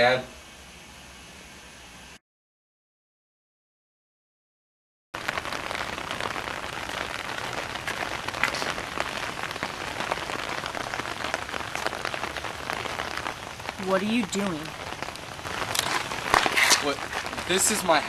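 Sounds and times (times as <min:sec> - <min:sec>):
rain on wet pavement: 0:05.2 - 0:18.0.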